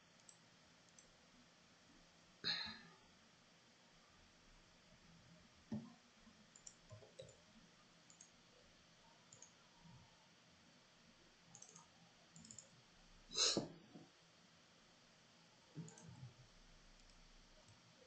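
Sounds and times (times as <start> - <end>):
faint computer mouse clicks: 6.5 - 7.4, 8.1 - 8.3, 9.3 - 9.6, 11.5 - 12.7, 15.8 - 16.2.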